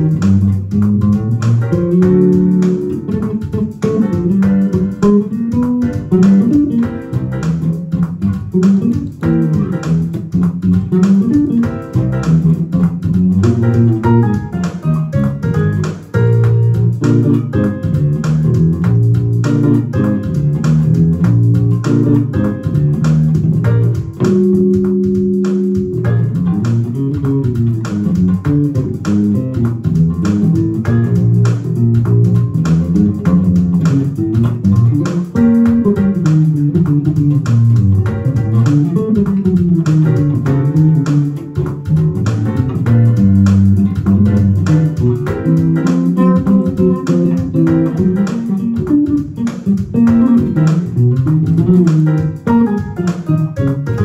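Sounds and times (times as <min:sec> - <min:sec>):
electric bass played fingerstyle: 0:00.0 - 0:54.0.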